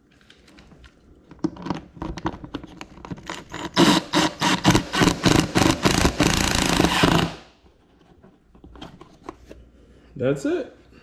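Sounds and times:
power drill running in pulses: 3.8 - 7.4.

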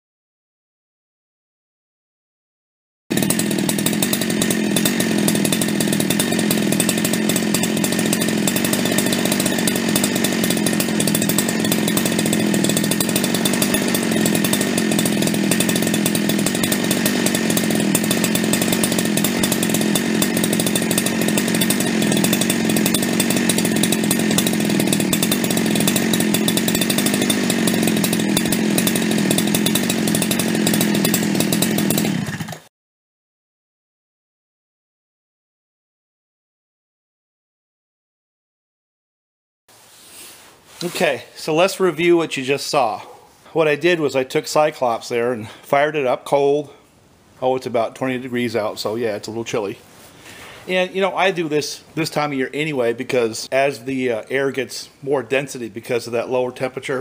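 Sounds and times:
chainsaw at full throttle: 3.1 - 32.7, 40.1 - 45.7, 47.9 - 54.3.

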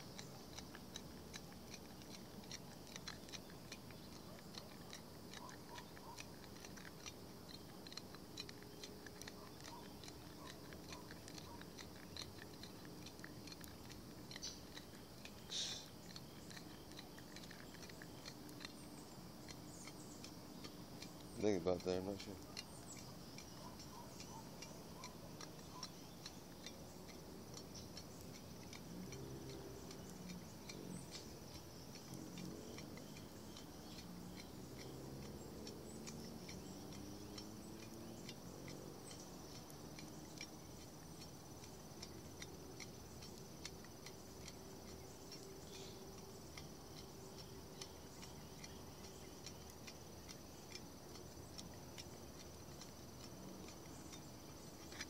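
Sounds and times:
small clicks and ticks: 0.0 - 55.0.

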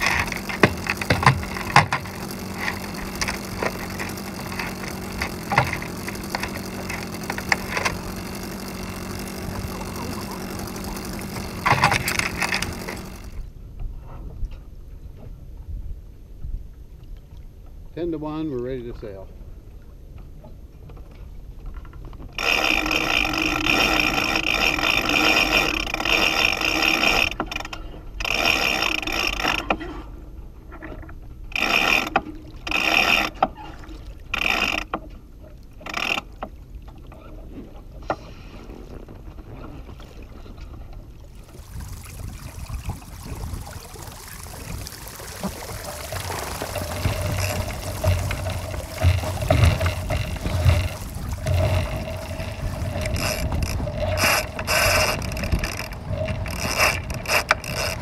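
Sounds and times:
wind and water rushing: 0.0 - 13.4, 39.8 - 58.0
line being hauled: 0.0 - 13.5, 20.9 - 58.0
sailboat rigging hardware working: 0.0 - 13.5, 20.2 - 58.0.

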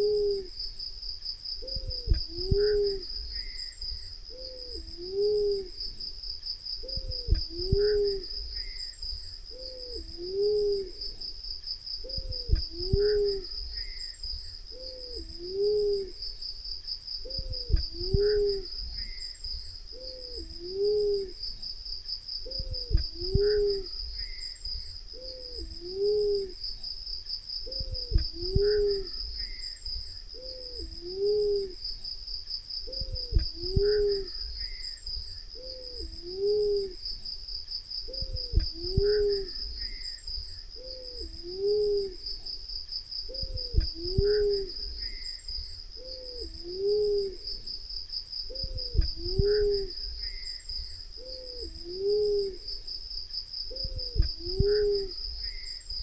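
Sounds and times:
dove cooing: 0.0 - 0.6, 1.6 - 3.6, 4.3 - 6.0, 6.8 - 8.8, 9.5 - 11.3, 12.0 - 14.0, 14.7 - 16.3, 17.2 - 19.2, 19.9 - 21.4, 22.4 - 24.4, 25.1 - 26.6, 27.6 - 29.6, 30.3 - 31.8, 32.8 - 34.8, 35.5 - 37.0, 38.1 - 40.0, 40.8 - 42.4, 43.3 - 45.2, 46.0 - 47.6, 48.5 - 50.4, 51.2 - 52.8, 53.7 - 55.6
high insect trill: 0.0 - 56.0.

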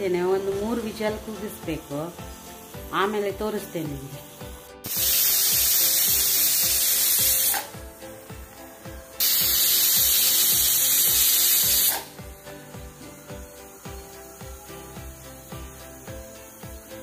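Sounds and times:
background music with steady beat: 0.0 - 17.0
pressure cooker whistle: 4.9 - 7.8, 9.2 - 12.2.

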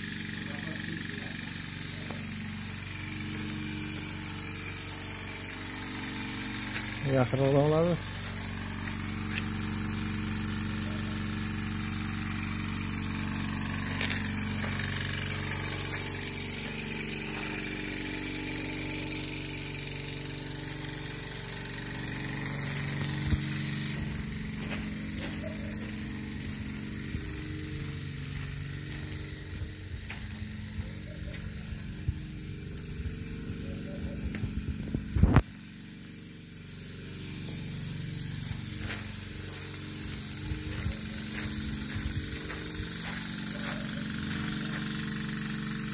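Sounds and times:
motor humming: 0.0 - 45.9
high hiss: 0.5 - 11.0, 12.8 - 32.4, 34.3 - 45.9.

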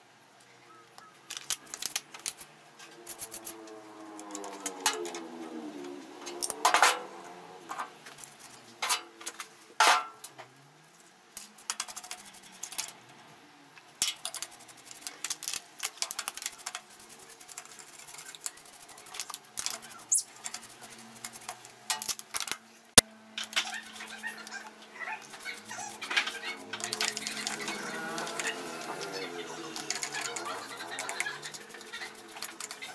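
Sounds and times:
stiff brush scrubbing metal: 14.0 - 22.3, 23.4 - 32.9.

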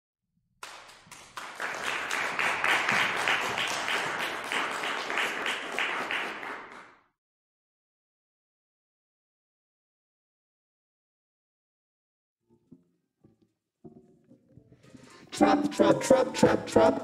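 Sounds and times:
audience applauding: 0.6 - 7.1.

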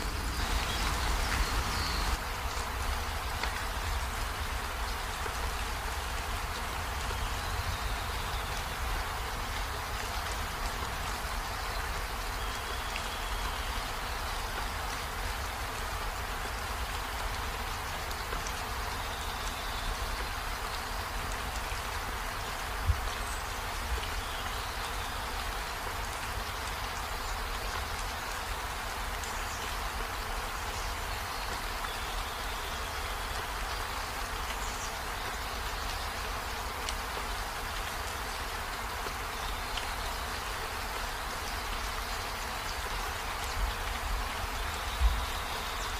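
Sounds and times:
steady hiss: 0.0 - 11.6.

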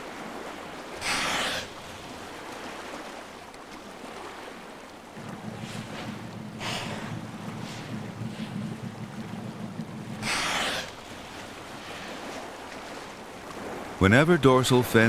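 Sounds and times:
lapping sea water: 0.0 - 15.0
whale blowing breath: 1.0 - 2.0, 5.2 - 12.8
low steady hum: 5.0 - 13.6.

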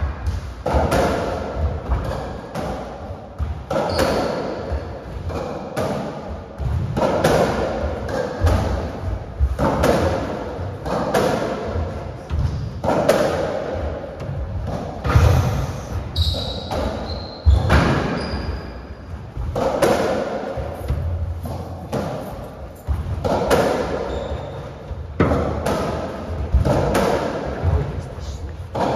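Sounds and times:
ball struck by rackets: 5.2 - 15.3, 19.1 - 24.2, 24.9 - 27.8.

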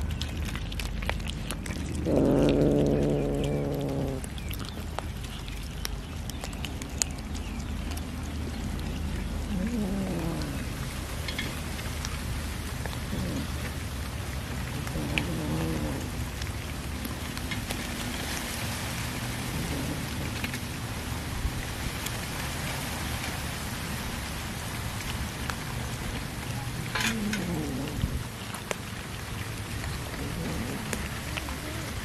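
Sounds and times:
cats chewing fish: 0.0 - 23.6, 24.6 - 32.0.

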